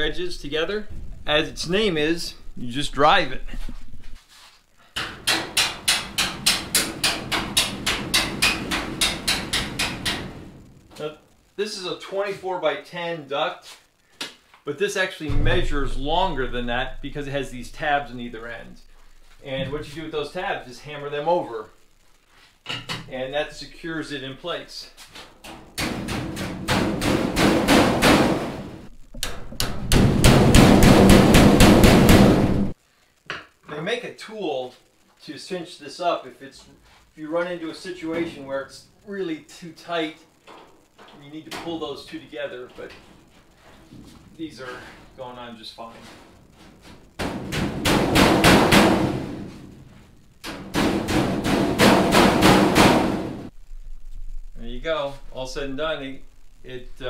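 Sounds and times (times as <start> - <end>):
hammer banging on sheet metal: 5.0 - 10.7, 25.4 - 32.7, 47.2 - 53.5.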